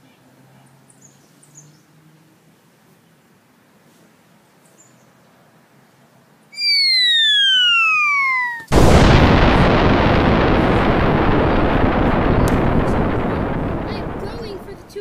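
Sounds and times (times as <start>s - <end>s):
descending whistle: 6.6s - 9.5s
loud rumbling explosion: 6.6s - 15.0s.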